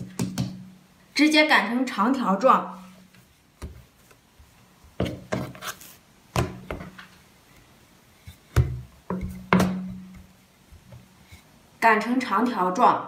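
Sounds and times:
soft rubbing of dough: 0:02.6 - 0:11.8.

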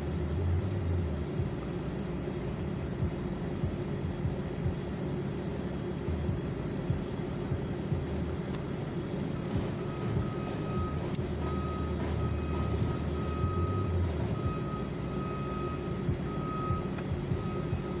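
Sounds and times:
diesel engines rumbling: 0:00.0 - 0:18.0
backup alarm beeping: 0:08.9 - 0:18.0.

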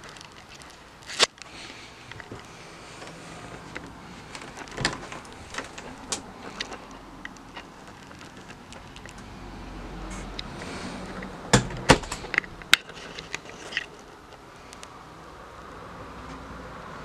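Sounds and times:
sharp clicks and knocks: 0:00.0 - 0:09.3, 0:10.0 - 0:14.9
faint steady background: 0:00.0 - 0:17.0.

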